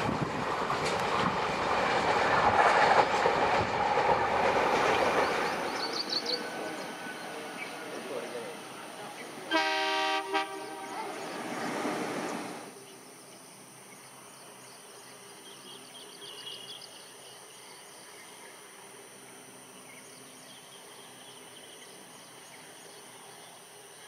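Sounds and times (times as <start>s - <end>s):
bird chirps: 5.2s - 7.9s.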